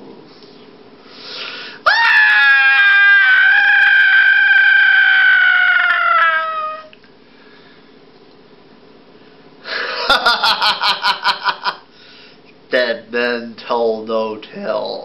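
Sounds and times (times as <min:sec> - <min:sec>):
high-pitched wailing cry: 0:01.9 - 0:06.9.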